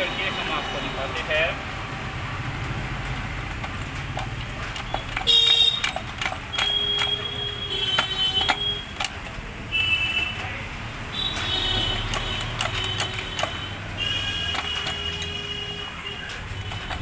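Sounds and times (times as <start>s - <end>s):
metal clicks and knocks: 2.6s - 9.5s, 11.2s - 17.0s.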